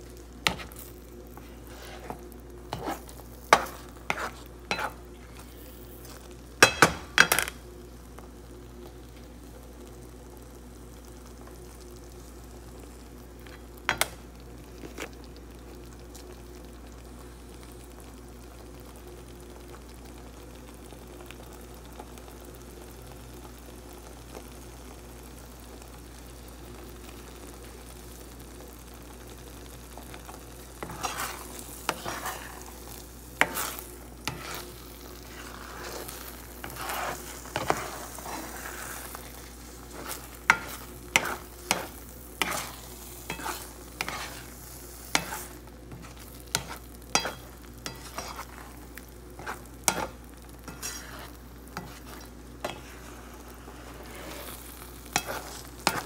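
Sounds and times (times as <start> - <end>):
sauce cooking: 0.0 - 56.0
spatula scraping and tapping pan: 0.4 - 5.0, 6.0 - 7.6, 30.3 - 56.0.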